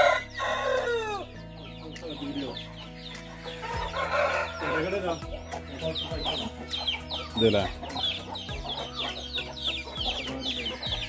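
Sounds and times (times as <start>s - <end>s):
loud chicken call: 0.0s - 1.3s, 3.4s - 5.0s
chick peeps: 0.0s - 11.0s
chickens clucking: 0.0s - 11.0s.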